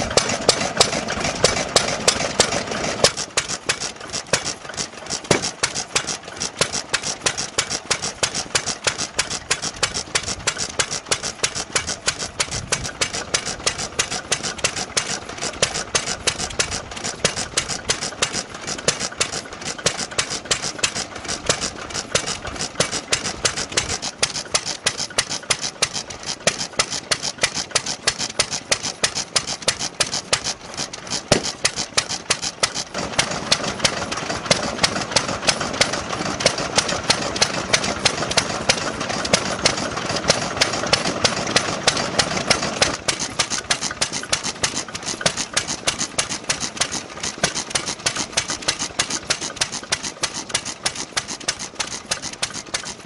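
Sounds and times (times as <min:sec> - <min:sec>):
stationary engine running: 0:00.0 - 0:53.0.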